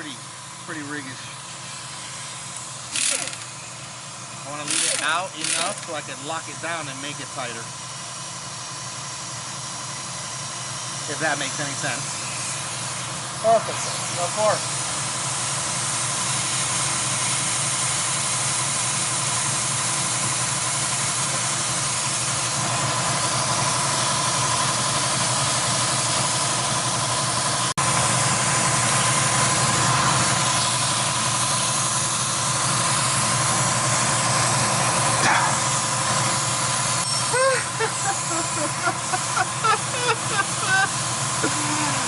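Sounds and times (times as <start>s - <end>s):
steady hiss: 0.0s - 37.0s
machinery whine: 0.0s - 42.0s.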